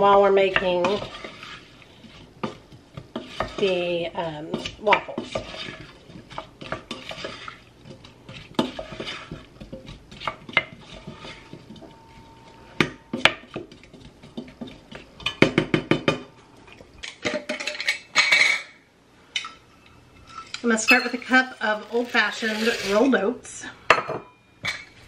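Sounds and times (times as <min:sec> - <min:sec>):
wooden spoon scraping saucepan: 0:00.0 - 0:15.4, 0:20.1 - 0:23.5.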